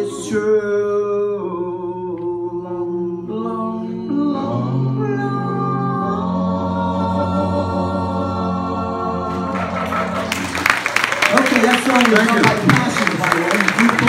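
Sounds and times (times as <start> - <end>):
male vocal group singing in harmony: 0.0 - 10.6.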